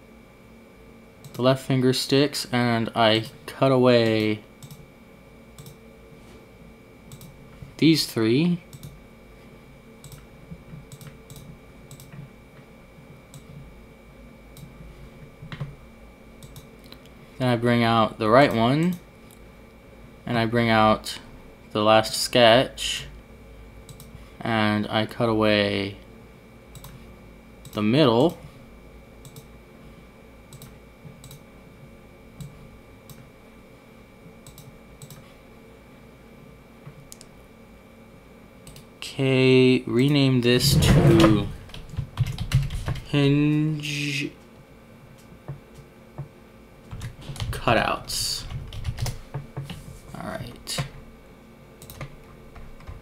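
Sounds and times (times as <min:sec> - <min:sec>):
computer mouse clicking: 0:04.1 - 0:04.8, 0:05.6 - 0:05.8, 0:07.1 - 0:07.4, 0:08.7 - 0:09.0, 0:10.0 - 0:12.3, 0:16.4 - 0:17.1, 0:23.9 - 0:24.2, 0:26.7 - 0:27.0, 0:29.2 - 0:29.5, 0:30.5 - 0:31.4, 0:32.4 - 0:33.3, 0:34.4 - 0:35.3, 0:38.6 - 0:38.9, 0:51.8 - 0:52.2.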